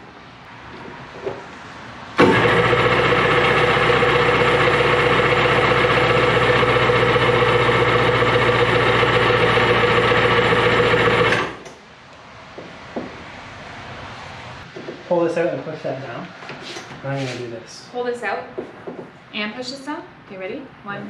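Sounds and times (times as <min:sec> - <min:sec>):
two-stroke engine running: 0:02.2 - 0:11.6.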